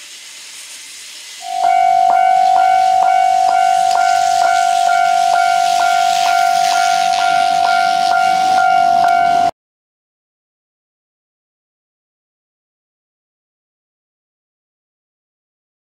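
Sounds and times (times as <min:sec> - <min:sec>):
clanging strokes: 0:01.4 - 0:09.5
level crossing ringing tone: 0:01.4 - 0:09.5.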